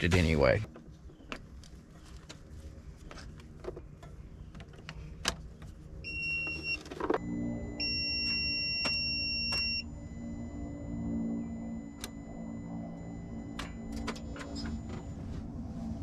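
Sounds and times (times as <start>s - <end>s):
low electrical hum: 0.0s - 16.0s
continuous high beep: 6.0s - 15.4s
short high electronic beep: 7.2s - 15.2s.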